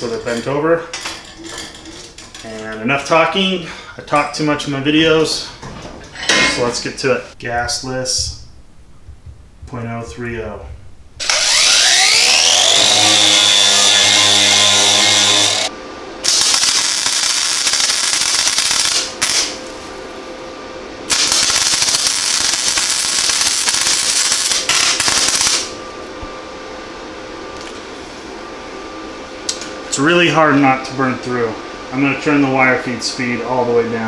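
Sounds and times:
welder fan humming: 0.0s - 34.0s
angle grinder whining on steel: 11.2s - 19.6s, 21.1s - 25.7s
welding arc crackling: 11.2s - 19.9s, 21.1s - 25.8s.

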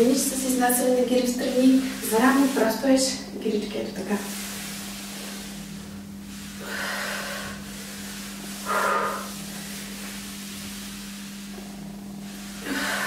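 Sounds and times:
steady low hum: 0.0s - 13.0s
towel sliding across wooden floor: 4.1s - 13.0s.

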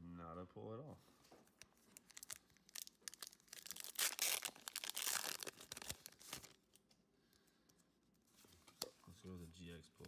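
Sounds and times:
foil wrapper tearing and crinkling: 2.0s - 6.6s.

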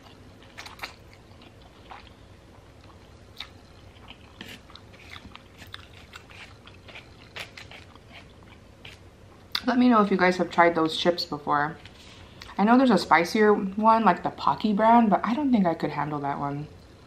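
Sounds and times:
person chewing food: 0.0s - 9.6s.

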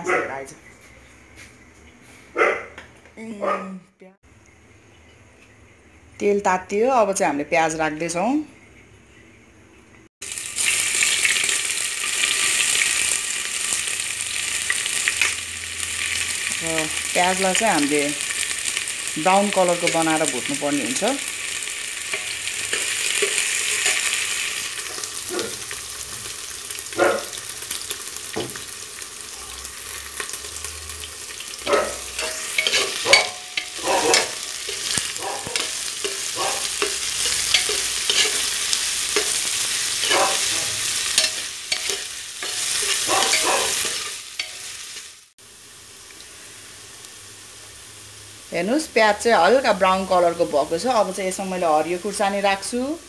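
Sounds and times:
onions sizzling in hot oil: 10.2s - 53.0s
metal spoon scraping a pot: 31.8s - 44.7s.

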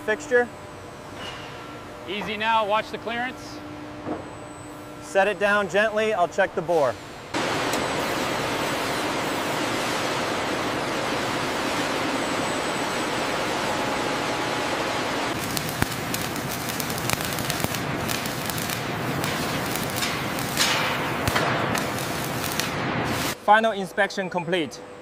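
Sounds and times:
factory background hiss: 4.7s - 24.0s.

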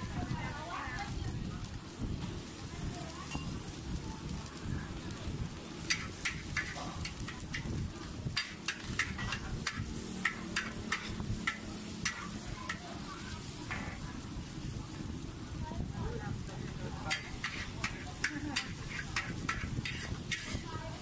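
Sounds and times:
metal spatula scraping a wok: 5.8s - 14.2s, 16.8s - 21.0s.

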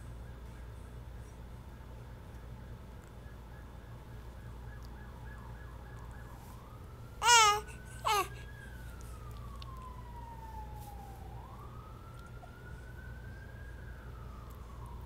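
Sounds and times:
siren wailing: 4.4s - 15.0s
baby squealing: 7.2s - 8.3s.

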